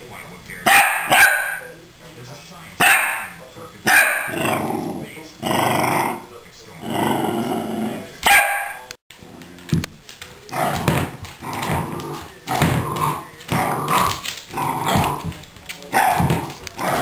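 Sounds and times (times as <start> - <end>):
small dog growling and barking: 3.9 - 6.2, 10.5 - 15.3, 16.0 - 17.0.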